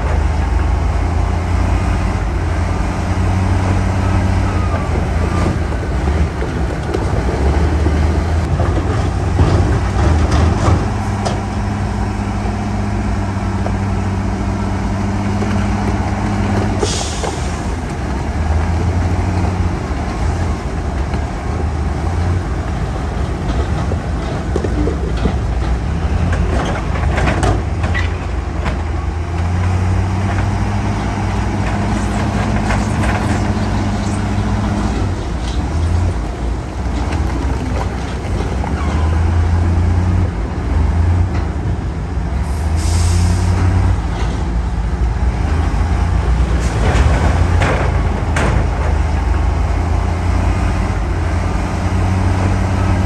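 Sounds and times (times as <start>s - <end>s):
heavy diesel engines running: 0.0s - 53.0s.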